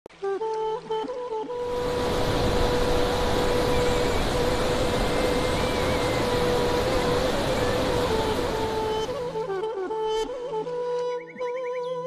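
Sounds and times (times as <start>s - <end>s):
water rushing over rocks: 1.6s - 9.6s.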